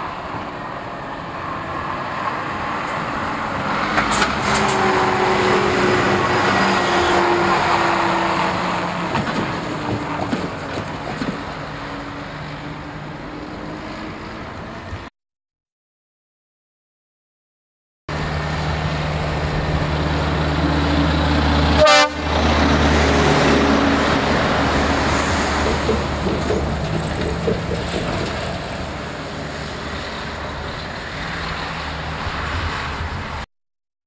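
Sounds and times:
lorry diesel engine passing: 0.0s - 15.1s, 18.1s - 33.4s
horn toot: 6.6s - 7.7s, 21.7s - 22.4s.

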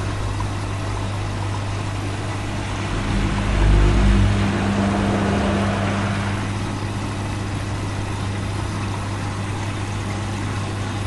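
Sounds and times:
higher motor tone: 0.0s - 8.7s
washing machine motor hum: 0.0s - 11.0s
low rumble: 1.2s - 8.6s.

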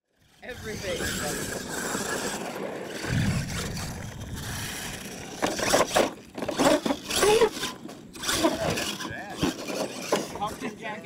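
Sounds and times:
rc truck driving on dirt: 0.0s - 11.0s
low rumble: 3.0s - 5.4s.

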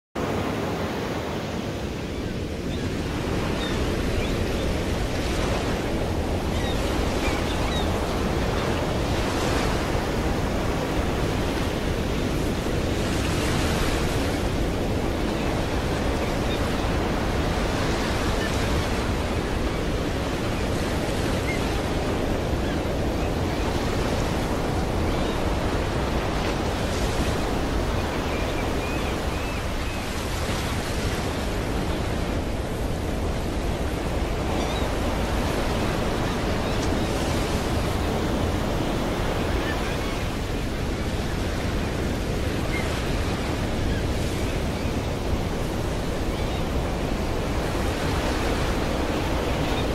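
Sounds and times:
waves breaking on a beach: 0.2s - 49.9s.

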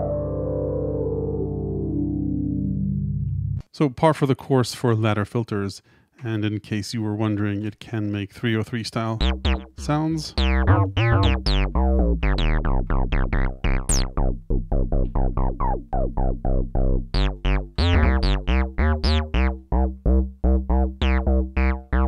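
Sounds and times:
synthesizer acid bassline: 9.2s - 22.0s.

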